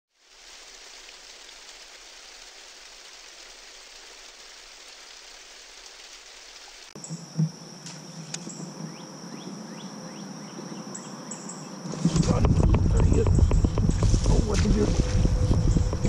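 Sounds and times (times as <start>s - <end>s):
river flowing: 0.1s - 7.0s
rain-like hiss: 0.1s - 10.7s
high insect drone: 7.0s - 16.0s.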